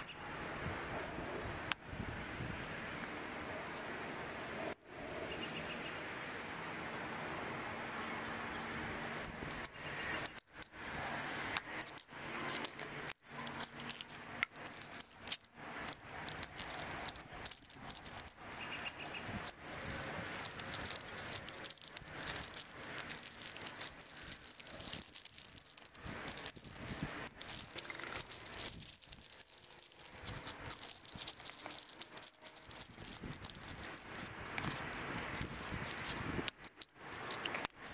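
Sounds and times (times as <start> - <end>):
plastic bag crinkling: 9.4 - 37.9
scissors snipping: 11.5 - 37.9
small clicks and knocks: 11.5 - 37.9.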